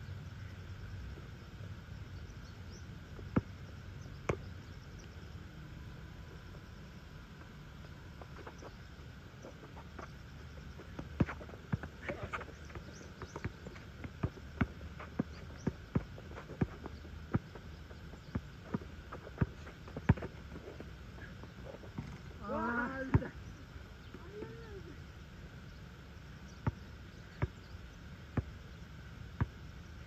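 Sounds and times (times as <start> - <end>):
basketball bouncing on asphalt: 3.2 - 5.1, 9.6 - 22.2, 26.6 - 27.7.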